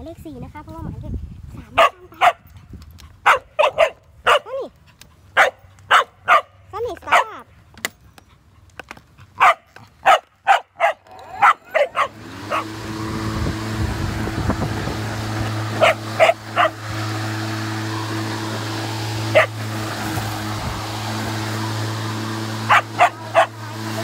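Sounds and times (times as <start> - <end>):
dog barking: 1.8 - 2.4, 3.2 - 4.6, 5.4 - 7.4, 9.4 - 12.7, 15.8 - 16.8, 19.3 - 19.6, 22.7 - 23.6
electric lawn mower humming: 9.8 - 24.0.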